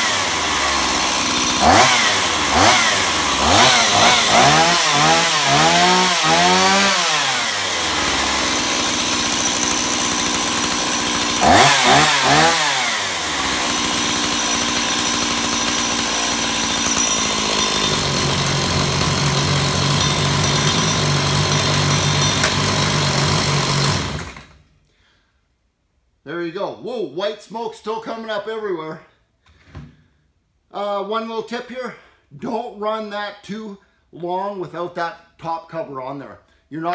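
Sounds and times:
chainsaw engine revving and idling: 0.0 - 24.6.

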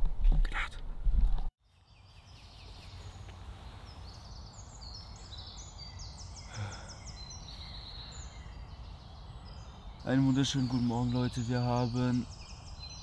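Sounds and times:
birds chirping and trilling: 1.6 - 13.0
outdoor background hiss: 1.6 - 13.0.

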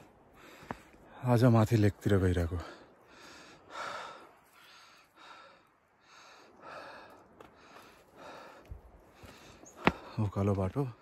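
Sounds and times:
person breathing hard: 0.2 - 1.2, 2.7 - 10.2.

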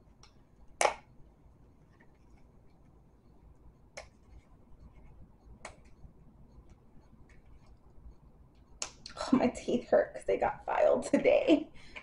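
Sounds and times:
plastic tube sharp clicks: 0.8 - 1.0.

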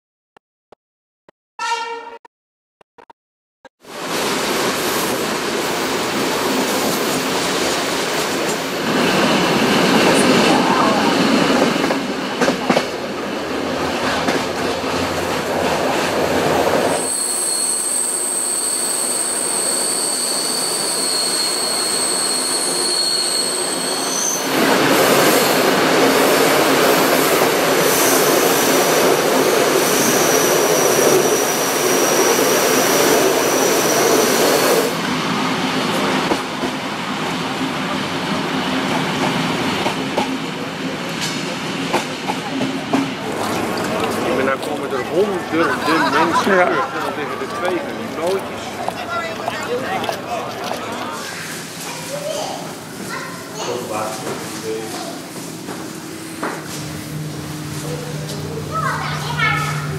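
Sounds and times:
train wheels rumbling on track: 3.9 - 19.7, 23.3 - 49.5
steel wheels squealing on rails: 16.6 - 35.0.

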